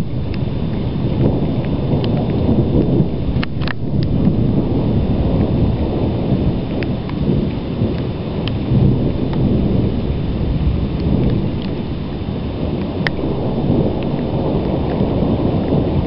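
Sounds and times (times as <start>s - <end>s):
low rumbling thunder: 0.0s - 16.0s
faint clicks: 3.4s - 4.3s, 12.8s - 13.2s.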